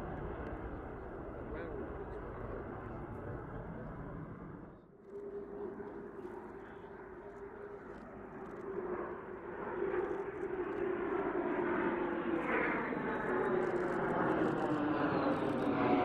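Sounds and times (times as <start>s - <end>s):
jet fighters flying past: 6.6s - 16.0s.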